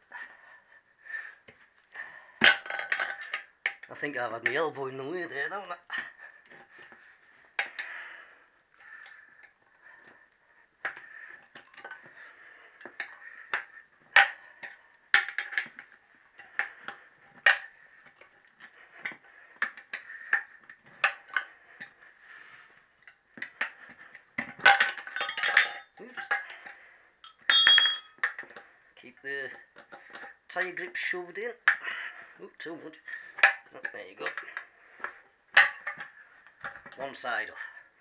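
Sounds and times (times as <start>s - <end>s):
tyre levers clinking on wheel rim: 24.4s - 26.5s, 27.2s - 28.6s.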